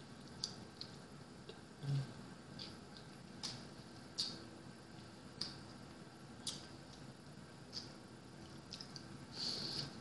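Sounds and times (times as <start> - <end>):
person chewing: 0.2 - 10.0
wet mouth clicks and smacks: 6.4 - 7.0.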